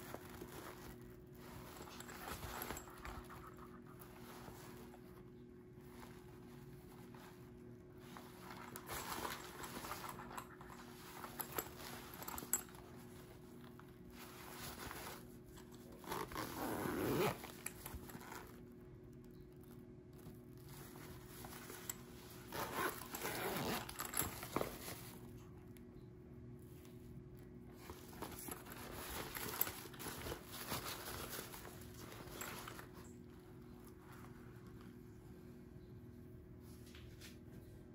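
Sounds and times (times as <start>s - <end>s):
bag fabric rustling: 0.0s - 18.8s, 19.6s - 25.4s, 27.6s - 35.0s
bag zippers being pulled: 16.0s - 18.6s, 22.4s - 24.6s.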